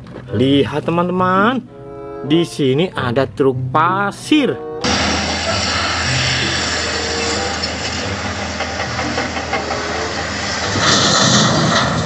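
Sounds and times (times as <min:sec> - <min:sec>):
heavy diesel engines running: 0:04.8 - 0:12.0.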